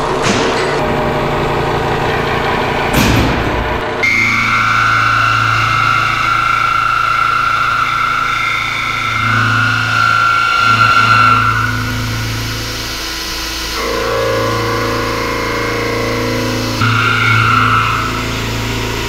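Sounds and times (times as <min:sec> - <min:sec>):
low hum: 0:00.0 - 0:19.0
high-pitched cutting whine: 0:00.8 - 0:19.0
lower steady tones: 0:00.8 - 0:19.0.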